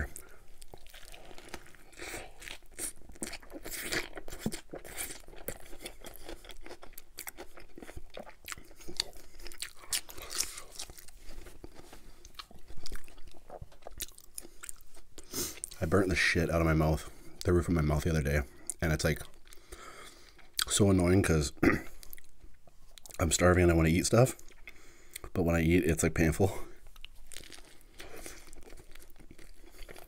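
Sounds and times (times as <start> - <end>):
person chewing crunchy food: 0.0 - 16.0, 18.5 - 20.8, 21.9 - 23.3, 24.4 - 25.3, 26.8 - 30.0.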